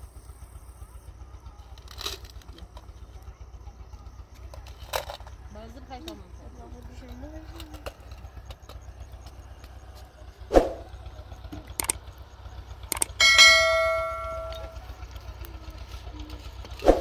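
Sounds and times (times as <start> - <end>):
sharp thump: 10.5 - 10.9
short clicks: 11.7 - 12.0, 12.9 - 13.2
notification bell ding: 13.2 - 14.8.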